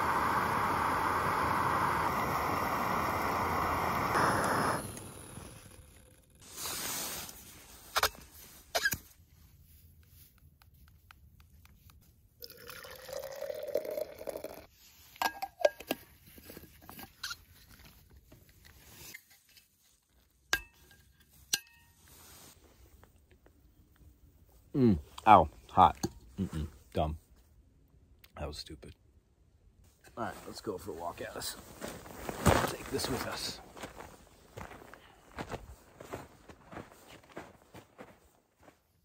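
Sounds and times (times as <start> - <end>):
steady rushing hiss: 0.0 - 7.4
hot water pouring into cup: 12.4 - 14.7.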